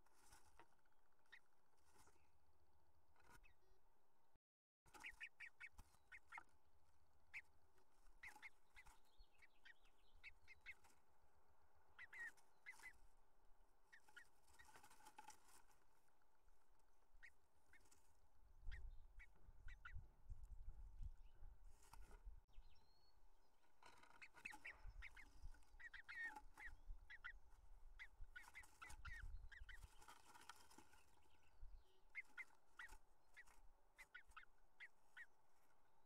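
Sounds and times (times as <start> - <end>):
bird rustling in nest: 0.0 - 2.2, 13.9 - 18.2, 21.6 - 22.3, 28.3 - 31.5.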